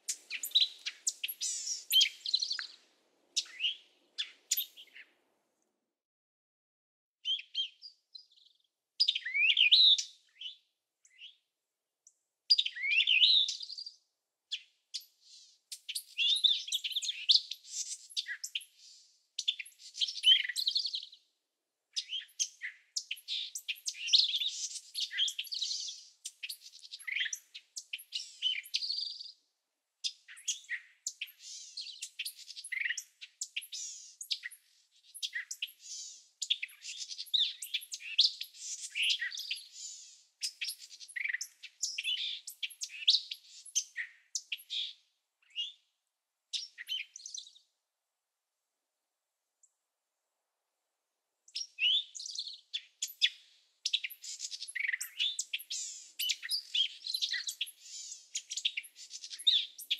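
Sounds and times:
birds chirping and twittering: 0.0s - 5.1s, 12.5s - 21.1s, 22.0s - 29.3s, 30.0s - 45.8s, 46.5s - 47.6s, 51.5s - 59.9s.

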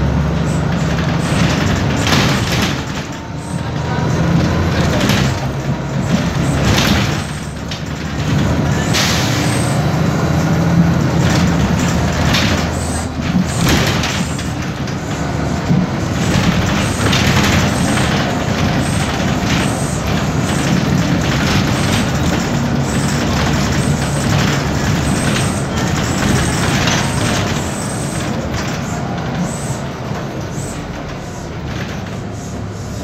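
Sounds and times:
bus diesel engine running: 0.0s - 33.0s.

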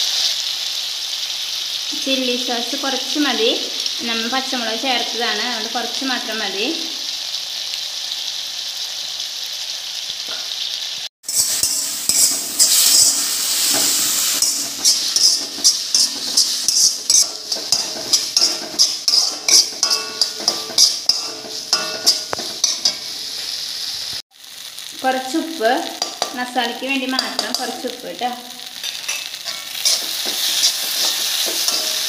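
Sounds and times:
food sizzling in a pan: 0.0s - 32.0s
utensil scraping a pan: 11.3s - 23.5s, 28.8s - 32.0s.

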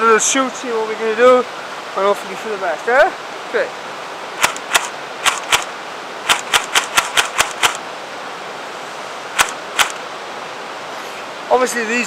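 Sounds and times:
river rushing: 0.0s - 12.0s
airsoft rifle shots: 4.4s - 5.7s, 6.3s - 7.8s, 9.4s - 10.0s.

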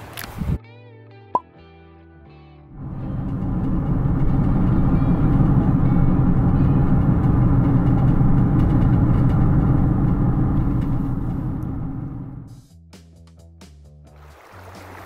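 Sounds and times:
car road and wind noise: 0.0s - 0.6s, 2.7s - 12.6s.

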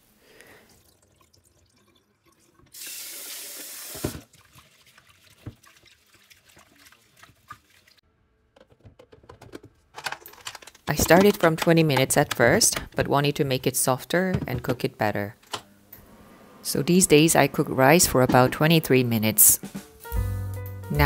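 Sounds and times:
small splashes and drips: 0.4s - 8.0s.

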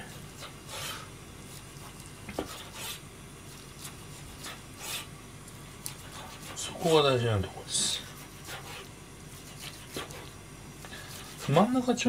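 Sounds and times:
knife slicing on cutting board: 0.3s - 5.1s.

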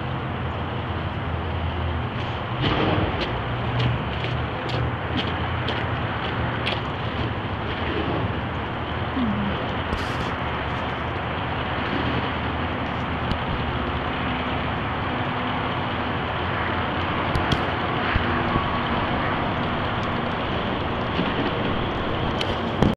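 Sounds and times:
traffic-like rumble: 0.0s - 22.9s
faint steady hum: 6.9s - 21.0s.

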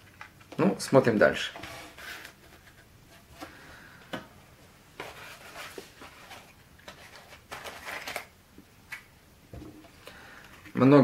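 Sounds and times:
cardboard rustling: 5.0s - 8.3s.

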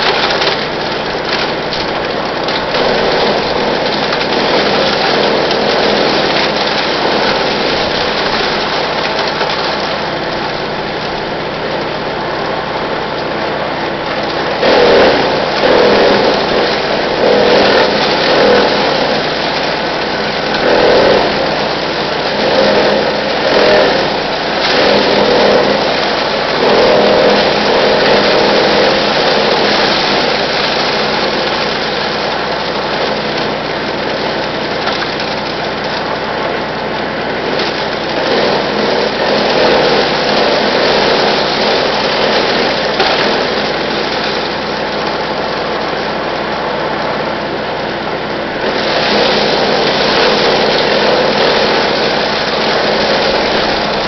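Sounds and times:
wood chipper engine running: 0.0s - 54.0s
branches being chipped: 14.3s - 31.8s.

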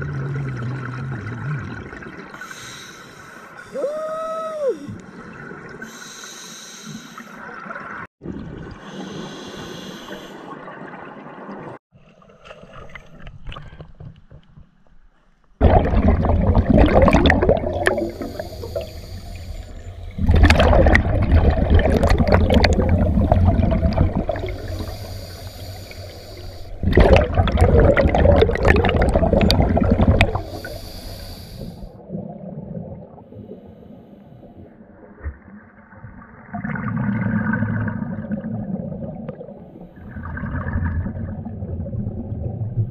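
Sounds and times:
regulator inhale hiss: 2.4s - 3.7s, 5.8s - 7.4s, 8.8s - 10.4s, 18.0s - 20.2s, 24.4s - 26.8s, 30.3s - 32.0s
exhaled bubbles rushing: 15.6s - 30.8s, 35.0s - 42.9s.

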